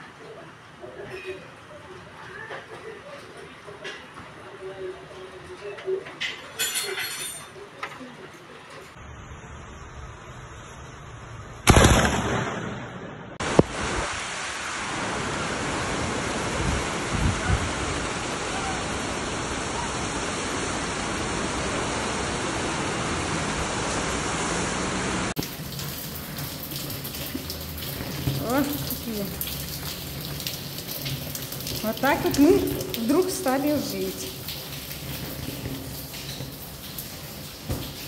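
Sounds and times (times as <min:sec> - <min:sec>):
lightning crack: 0:11.6 - 0:18.2
heavy rain hissing: 0:13.4 - 0:38.0
water dripping and pouring: 0:25.3 - 0:38.0.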